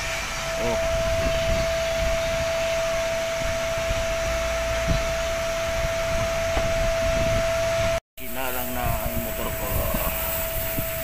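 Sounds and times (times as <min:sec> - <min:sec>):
pressure washer whine: 0:00.0 - 0:11.0
pressure washer spray hissing: 0:08.2 - 0:11.0.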